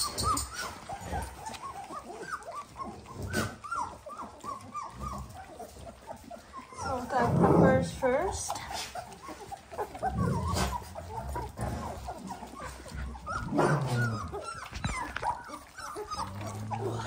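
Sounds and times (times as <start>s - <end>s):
dogs whimpering and whining: 0.0s - 17.0s.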